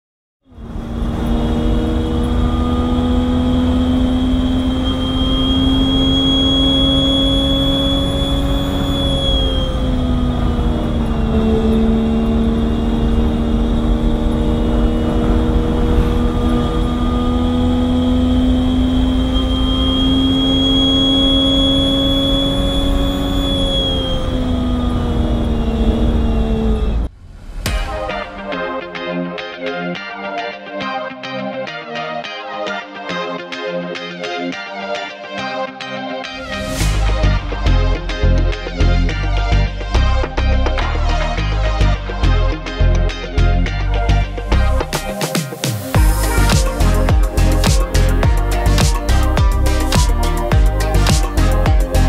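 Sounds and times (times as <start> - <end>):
race car engine under load: 0.5 - 27.6
high whine: 0.5 - 30.7, 36.2 - 52.0.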